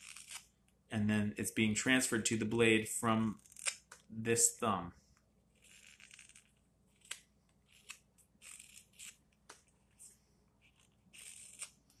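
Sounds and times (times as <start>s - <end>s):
knife shaving wood: 0.0s - 0.5s, 9.9s - 11.8s.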